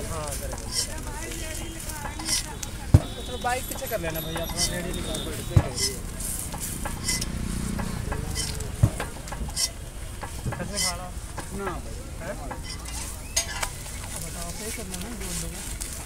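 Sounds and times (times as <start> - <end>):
sharp knock: 5.4 - 6.0.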